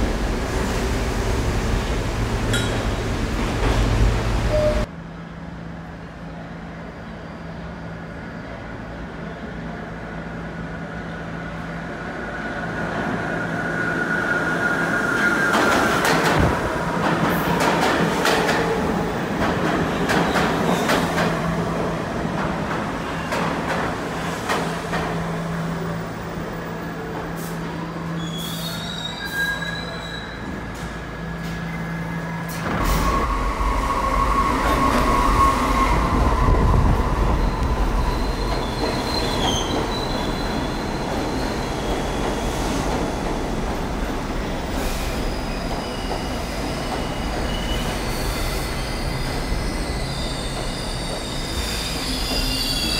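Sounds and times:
high-pitched wheel squeals: 0:28.2 - 0:30.6, 0:47.4 - 0:52.9.

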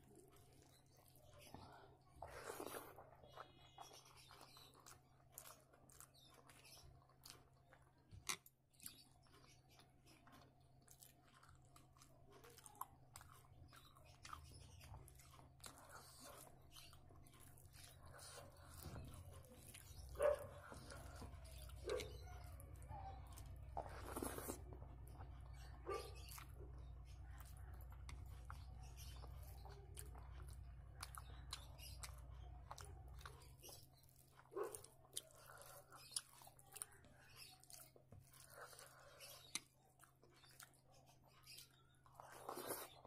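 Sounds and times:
chewing and mouth sounds: 0:00.0 - 0:43.0.

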